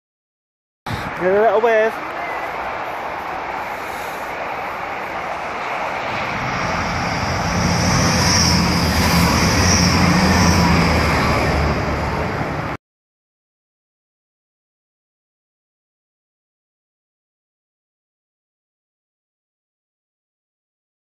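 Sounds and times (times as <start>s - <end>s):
diesel train passing at speed: 0.9s - 12.8s.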